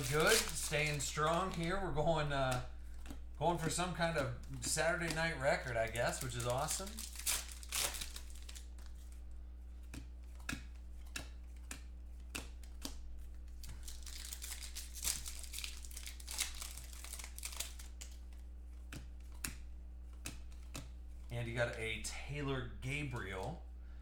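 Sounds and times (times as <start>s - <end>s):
foil wrappers tearing and crinkling: 0.0s - 2.7s, 3.5s - 9.1s, 13.5s - 18.2s
steady low hum: 0.0s - 24.0s.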